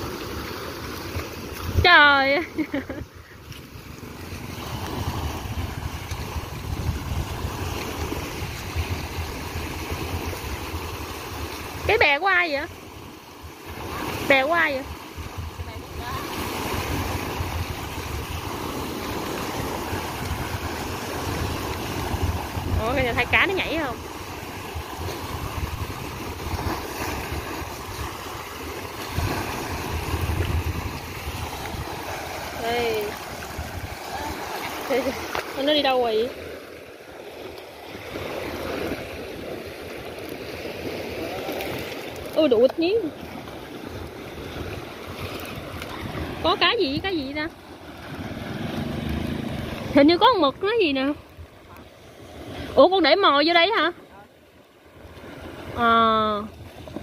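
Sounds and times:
small waves breaking on shore: 0.0 - 57.0
wind rumble on microphone: 2.7 - 35.8, 40.8 - 52.8.

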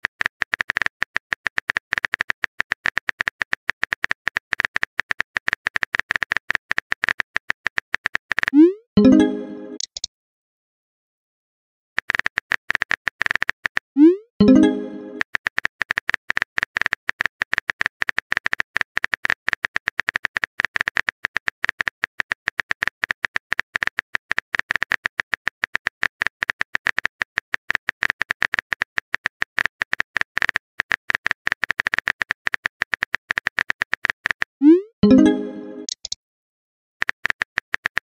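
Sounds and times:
keyboard typing clicks: 0.0 - 10.1, 12.0 - 21.9, 25.8 - 36.2.

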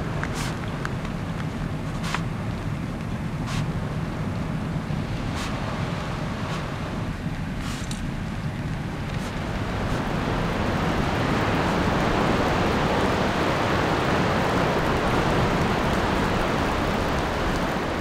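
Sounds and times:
windy rainstorm rushing: 0.0 - 18.0.

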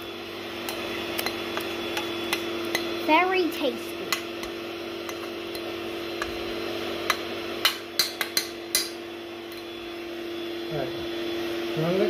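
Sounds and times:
spoon clinking against dish: 7.1 - 9.7.

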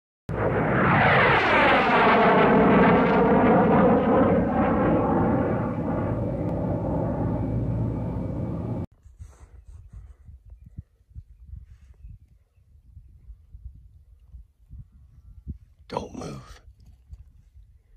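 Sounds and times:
loud rushing rumble: 0.3 - 8.9.

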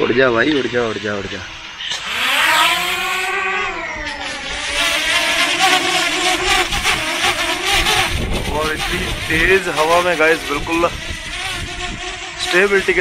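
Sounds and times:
drone propellers whining: 0.0 - 13.0
wind noise: 2.6 - 13.0.

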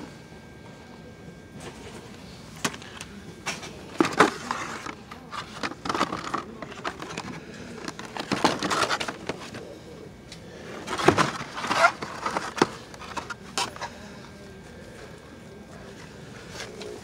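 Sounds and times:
blister packs clacking and crinkling: 2.6 - 9.8, 10.8 - 14.0.

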